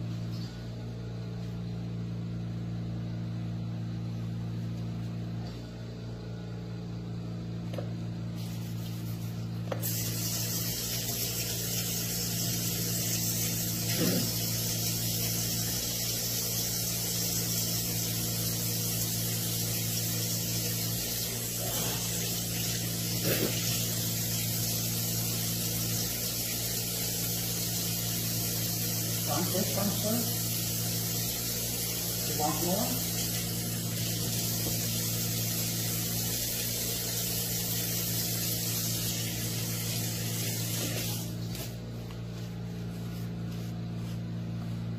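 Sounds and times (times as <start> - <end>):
faucet running into sink: 9.8 - 41.4.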